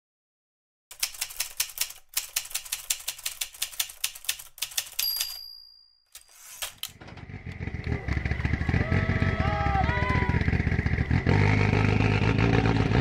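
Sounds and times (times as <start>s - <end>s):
typewriter keys clacking: 0.9s - 7.0s
typewriter carriage bell ding: 4.6s - 6.9s.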